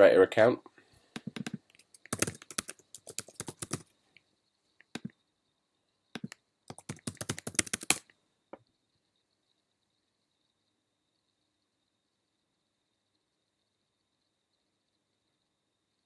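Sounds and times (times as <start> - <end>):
typing on computer keyboard: 1.1 - 3.9, 6.2 - 8.1.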